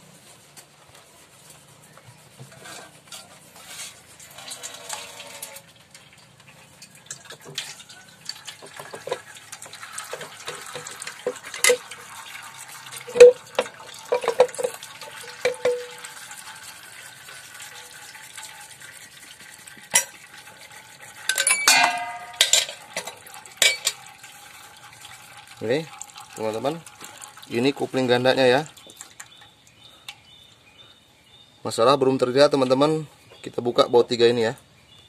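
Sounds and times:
metal clinks and knocks: 0:13.1 - 0:16.0, 0:21.3 - 0:24.0
metallic clattering rattle: 0:21.3 - 0:24.0.

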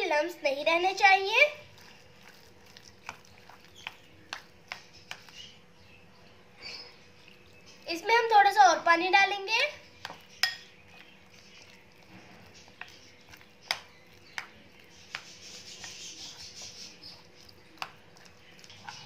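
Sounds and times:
spoon stirring thick batter: 0:00.0 - 0:19.0
spoon clinking against glass: 0:10.4 - 0:10.7.

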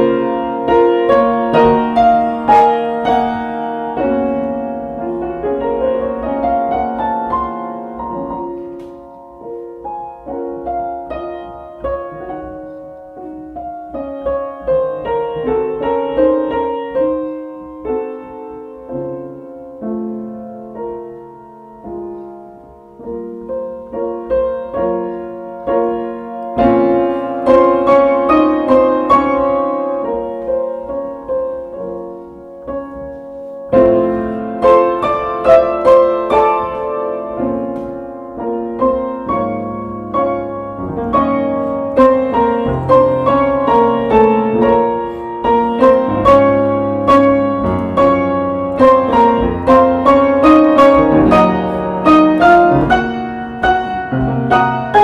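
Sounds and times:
piano music: 0:00.0 - 0:55.0.

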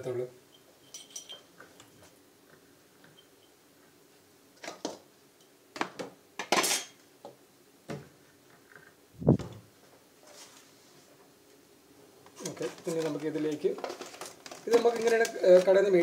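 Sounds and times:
kitchen utensils clinking: 0:00.8 - 0:01.8, 0:06.4 - 0:07.0.

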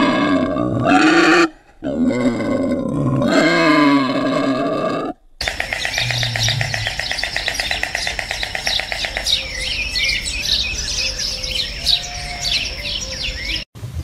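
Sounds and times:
bird trill: 0:05.4 - 0:13.7
small birds chirping: 0:05.4 - 0:13.7.

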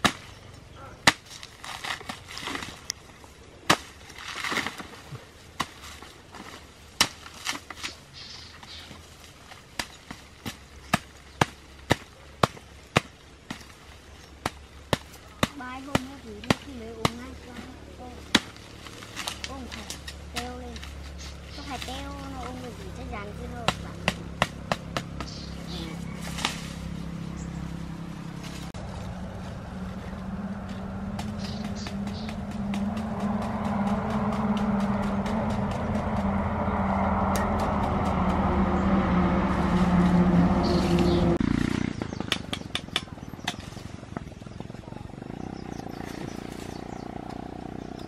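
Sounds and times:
machete striking soil: 0:00.0 - 0:00.4, 0:01.0 - 0:02.9, 0:03.6 - 0:08.0, 0:09.7 - 0:13.8, 0:18.2 - 0:22.5, 0:23.6 - 0:26.8
soil clicking and scraping: 0:00.0 - 0:27.6
steady low hum: 0:00.0 - 0:48.0.

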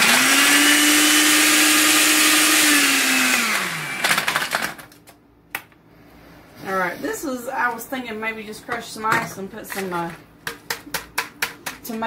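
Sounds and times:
blender motor hum: 0:00.0 - 0:04.8.

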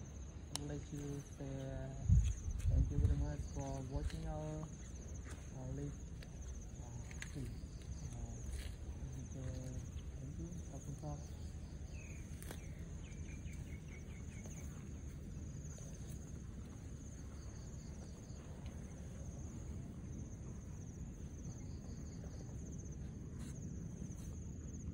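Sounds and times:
insects trilling: 0:00.0 - 0:24.9
bird chirping: 0:09.2 - 0:16.4.

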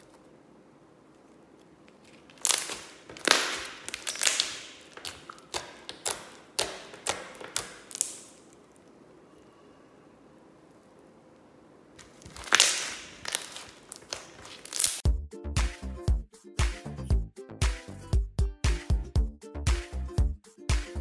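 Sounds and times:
foam bead slime clicking and popping: 0:02.1 - 0:08.6, 0:12.3 - 0:15.0.

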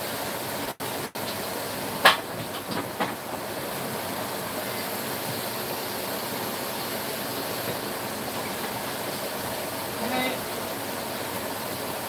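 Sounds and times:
chicken sizzling in a pan: 0:03.2 - 0:12.0.

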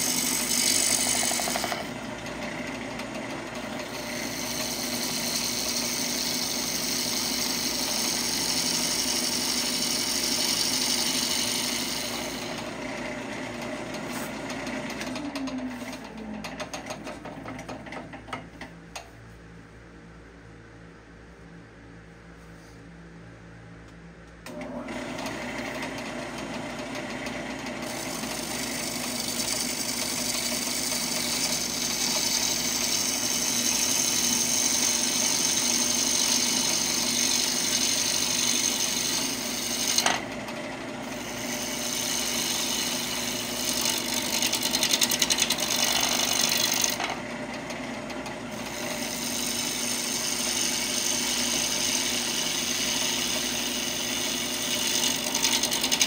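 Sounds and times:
gouge scraping spinning wood: 0:00.0 - 0:17.6, 0:25.2 - 0:56.0
wood lathe motor humming: 0:00.0 - 0:17.8, 0:24.5 - 0:56.0.

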